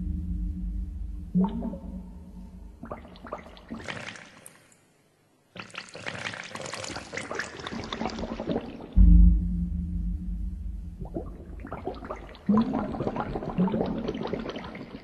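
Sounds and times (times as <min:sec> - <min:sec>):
water pouring and fizzing: 0:03.0 - 0:04.6, 0:05.6 - 0:09.0.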